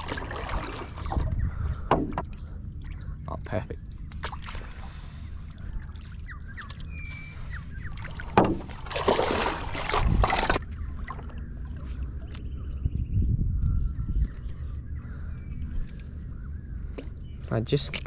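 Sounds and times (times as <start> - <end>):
paddle in shallow water: 0.0 - 12.8
splashing and scuffing: 8.0 - 10.6.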